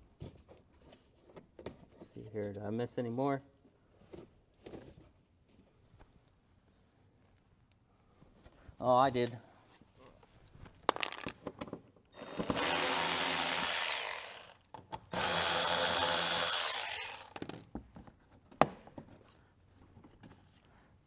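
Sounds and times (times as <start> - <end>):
cordless power drill spinning: 12.2 - 17.6.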